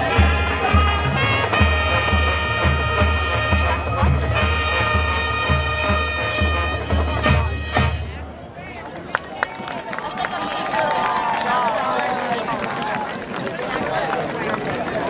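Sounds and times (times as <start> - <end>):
brass chords: 0.0 - 8.2
marching band playing: 0.0 - 8.3.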